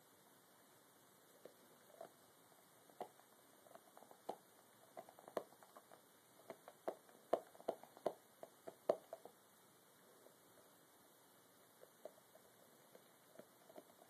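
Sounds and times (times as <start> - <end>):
dog chewing claws: 2.9 - 9.3.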